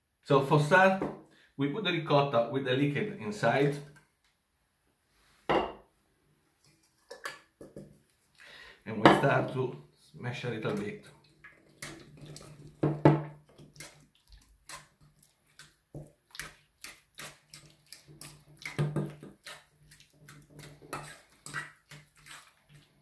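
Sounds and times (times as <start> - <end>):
wet cheese squishing: 6.6 - 8.6, 10.6 - 23.0
utensil scraping metal bowl: 16.3 - 23.0.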